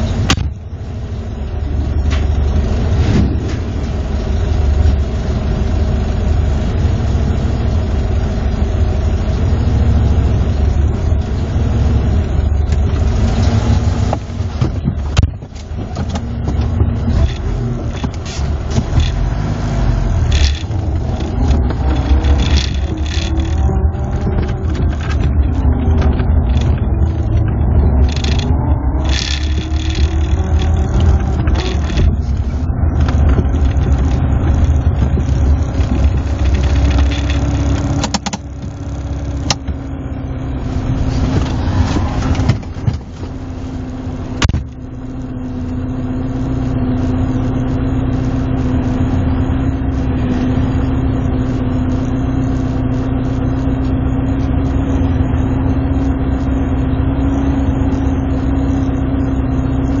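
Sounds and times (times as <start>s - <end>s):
car engine idling: 0.0s - 60.0s
car engine running under throttle: 0.0s - 60.0s
sharp clicks: 33.0s - 39.7s.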